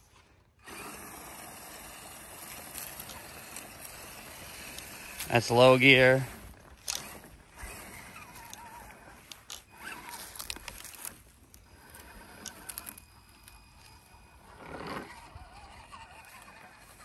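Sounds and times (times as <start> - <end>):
electric motor whining: 0.6 - 17.0
tyre clicks and crackles: 2.3 - 14.1.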